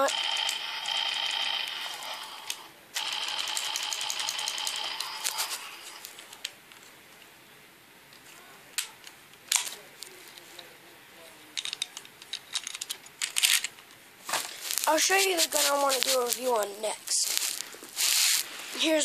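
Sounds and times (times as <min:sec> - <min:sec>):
toy revolver clicking: 0:00.1 - 0:06.5.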